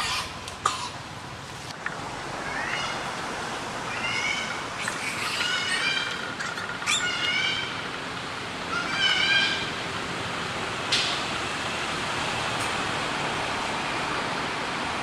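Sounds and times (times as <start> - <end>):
baby monkey crying: 0.0 - 0.4, 2.3 - 3.2, 3.8 - 7.9, 8.7 - 9.8.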